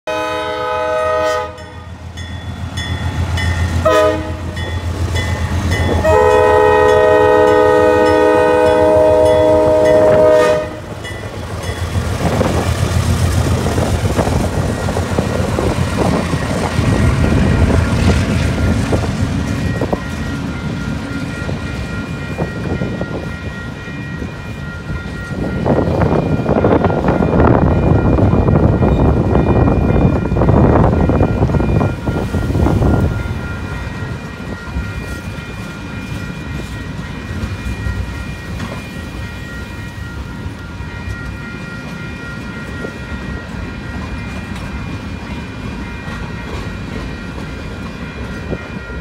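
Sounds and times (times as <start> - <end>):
locomotive horn blasts: 0.1 - 1.8, 3.8 - 4.6, 5.9 - 10.9.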